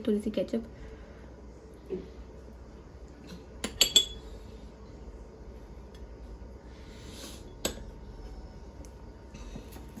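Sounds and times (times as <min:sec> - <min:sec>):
faint room hum: 0:00.0 - 0:10.0
spoon clinking against crockery: 0:03.6 - 0:04.2.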